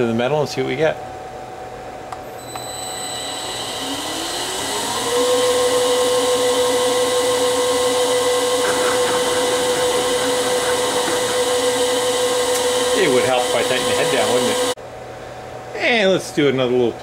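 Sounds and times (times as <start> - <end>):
motor whine rising: 2.2 - 14.8.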